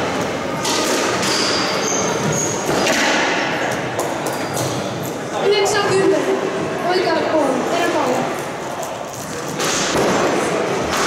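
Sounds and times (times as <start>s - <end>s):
squash ball hitting rackets and walls: 0.4s - 4.9s, 9.3s - 11.0s
shoes squeaking on wooden floor: 1.2s - 2.9s.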